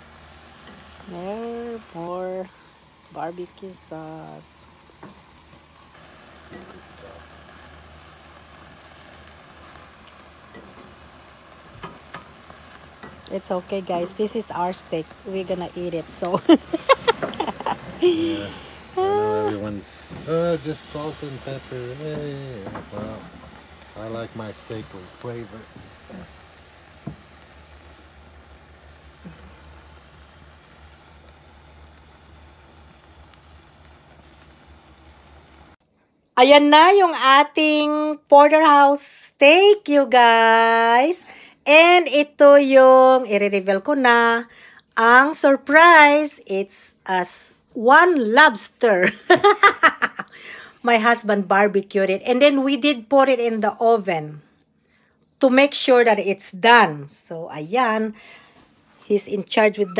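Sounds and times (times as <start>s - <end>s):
low steady rumble: 0.0s - 35.8s
steaks sizzling on a grill: 0.0s - 35.8s, 48.5s - 50.2s.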